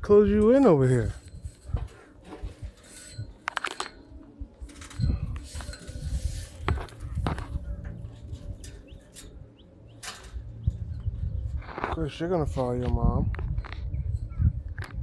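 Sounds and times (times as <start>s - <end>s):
metal gate clinking and knocking: 6.7s - 11.0s.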